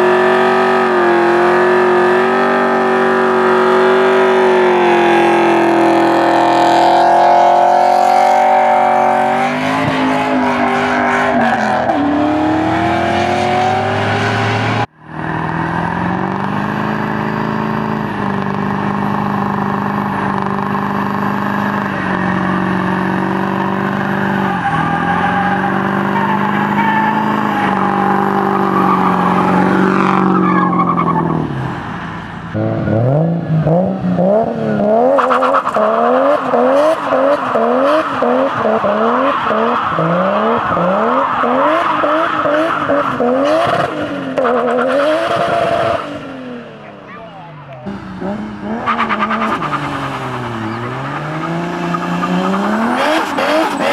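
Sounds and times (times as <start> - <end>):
engines revving high: 0.0 - 53.9
tyres squealing: 24.2 - 31.4.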